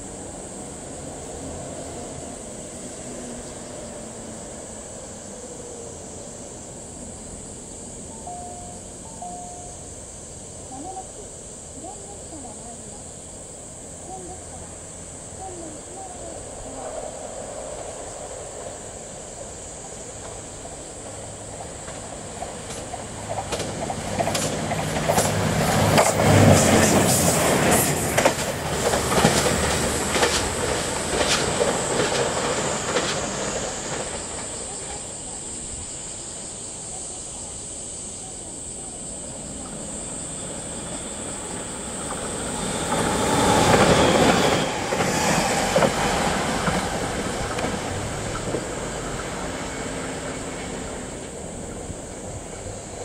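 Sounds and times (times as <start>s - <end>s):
diesel train engines running: 0.0s - 53.0s
electric train passing close by: 0.0s - 53.0s
wheels clattering over rail joints: 19.6s - 35.3s, 39.6s - 53.0s.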